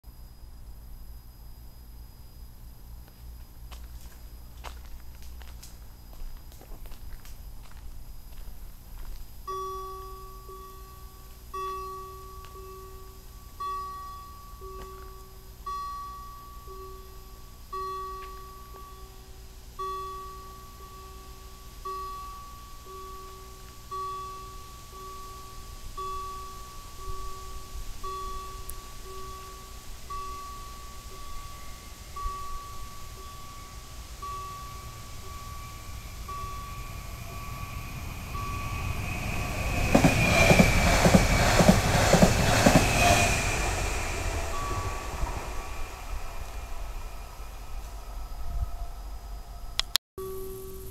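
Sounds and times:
level crossing warning bell: 0:09.0 - 0:47.8
train wheels rushing on rails: 0:30.1 - 0:48.2.

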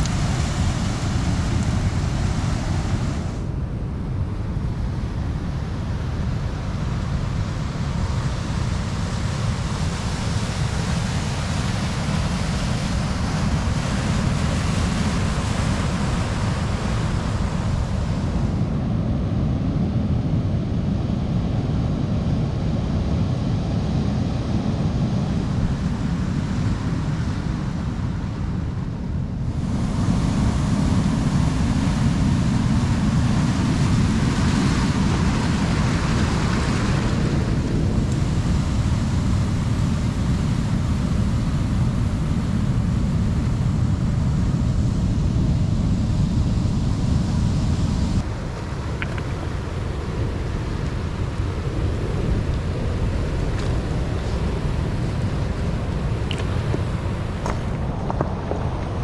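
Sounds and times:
surf breaking on stony beach: 0:00.0 - 0:03.5, 0:06.8 - 0:18.6, 0:29.4 - 0:59.0
wind rumbling on microphone: 0:00.0 - 0:59.0.

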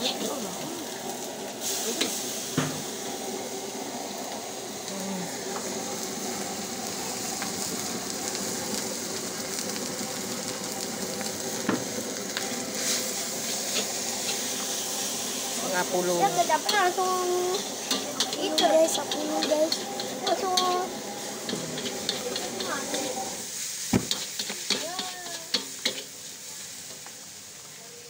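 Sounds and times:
food sizzling in a wok: 0:00.0 - 0:28.0
metal spatula stirring: 0:21.4 - 0:23.1, 0:24.1 - 0:26.1.

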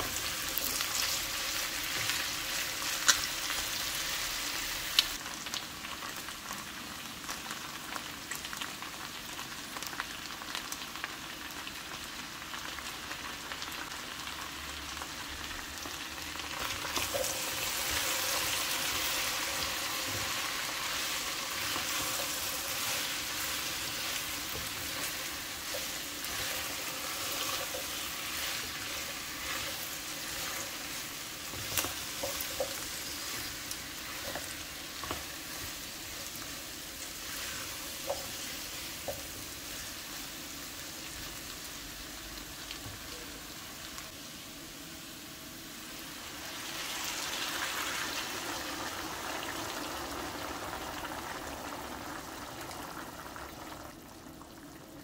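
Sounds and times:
food sizzling in a pot: 0:00.0 - 0:55.0.

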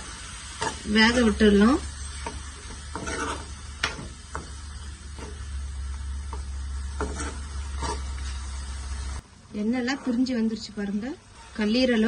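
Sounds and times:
spoon scraping a pan: 0:00.0 - 0:09.0
gravy sizzling: 0:00.0 - 0:12.0.

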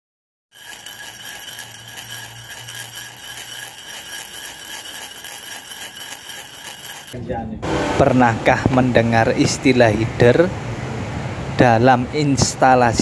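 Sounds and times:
fluttering chime-like ringing tones: 0:00.6 - 0:07.2.

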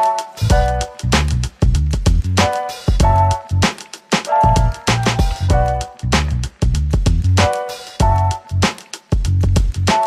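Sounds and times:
instrumental music with drums and bass: 0:00.0 - 0:10.0.

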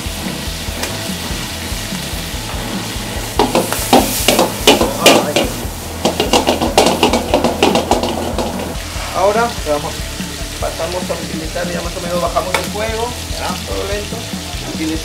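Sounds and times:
seafood sizzling in a pan: 0:00.0 - 0:15.0
spatula scraping a pan: 0:02.5 - 0:09.2.

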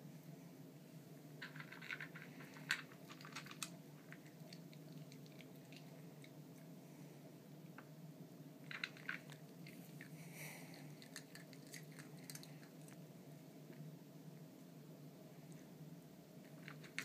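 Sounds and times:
dog chewing kibble: 0:08.7 - 0:13.0.

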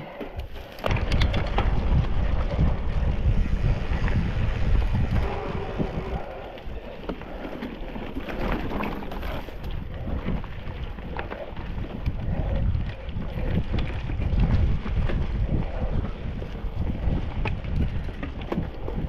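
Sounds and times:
wind rumbling on microphone: 0:00.0 - 0:19.0
bike knocks and rattles: 0:00.4 - 0:05.5.

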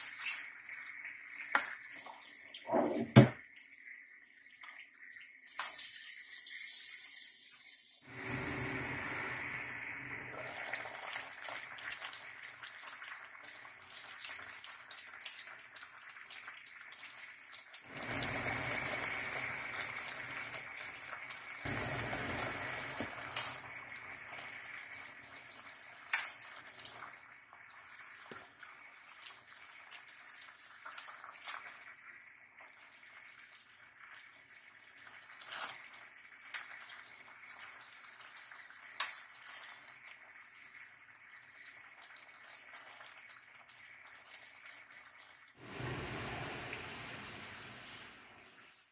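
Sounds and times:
pot of vegetables bubbling: 0:00.0 - 0:48.9.

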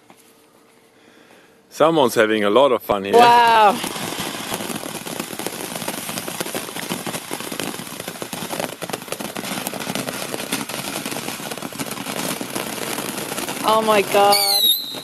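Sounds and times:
firework hissing and crackling: 0:03.1 - 0:15.0.

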